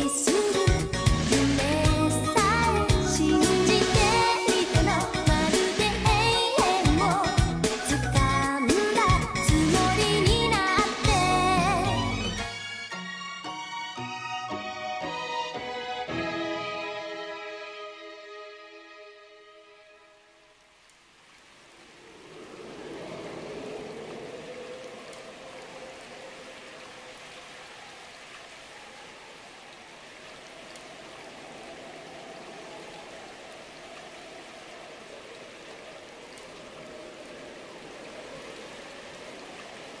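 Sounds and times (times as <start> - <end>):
rushing water hiss: 0.0 - 11.8, 20.2 - 40.0.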